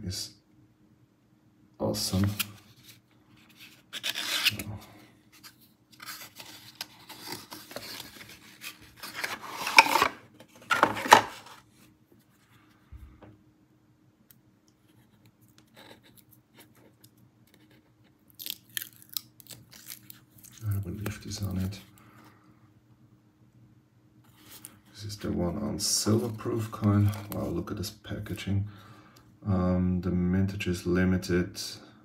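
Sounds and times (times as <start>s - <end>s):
cardboard box scraping: 6.0s - 11.6s.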